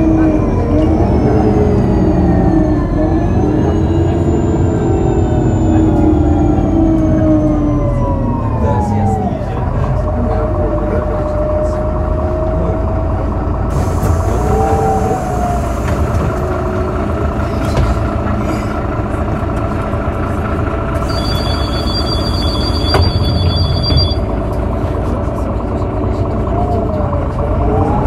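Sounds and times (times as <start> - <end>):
bus diesel engine running: 0.0 - 28.0
gearbox whine: 20.9 - 24.7.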